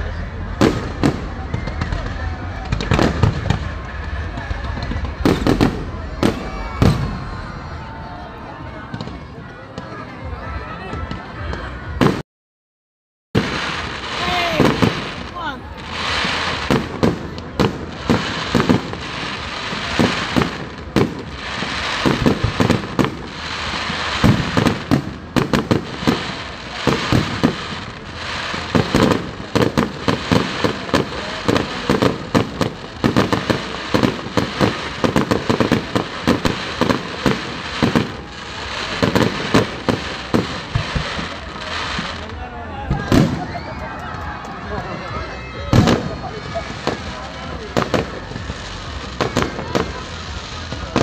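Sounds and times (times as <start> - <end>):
fireworks bangs: 0.0 - 12.2, 13.3 - 51.0
continuous hiss: 13.4 - 51.0.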